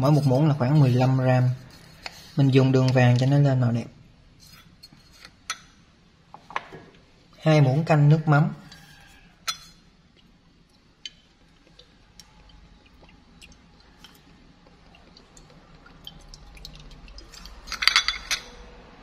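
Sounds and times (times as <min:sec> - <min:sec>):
sauce trickling into spoon: 0:11.1 - 0:18.7
spoon clinking against glass bowl: 0:17.2 - 0:18.6.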